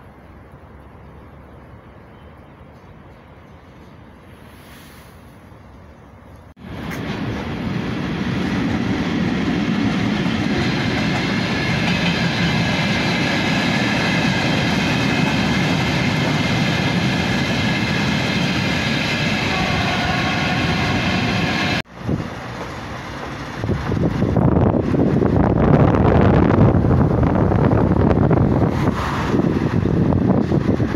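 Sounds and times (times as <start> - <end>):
train wheels rumbling on track: 6.6 - 30.9.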